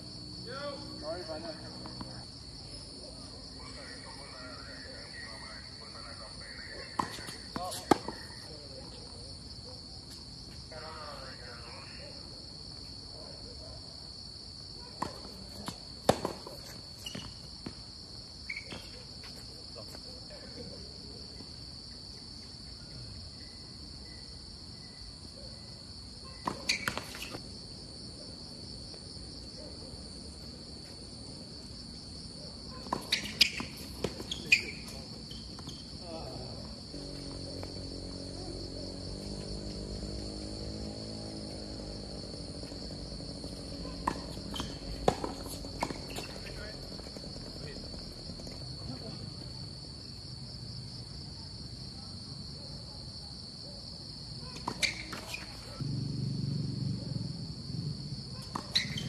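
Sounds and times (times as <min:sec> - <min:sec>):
insects chirring: 0:00.0 - 0:59.0
tennis balls struck and bouncing: 0:06.8 - 0:08.4, 0:15.0 - 0:17.8, 0:26.4 - 0:27.4, 0:32.8 - 0:36.0, 0:43.5 - 0:47.2, 0:54.6 - 0:55.7, 0:58.4 - 0:59.0.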